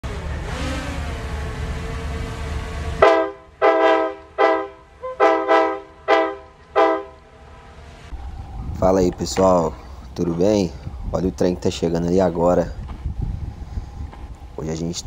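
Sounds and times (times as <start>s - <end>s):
train rumbling: 0.0s - 15.0s
locomotive air horn blasts: 2.7s - 7.2s.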